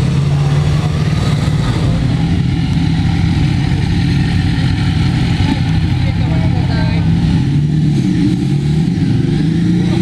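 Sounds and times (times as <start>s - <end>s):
motorcycle engine idling: 0.1s - 7.4s.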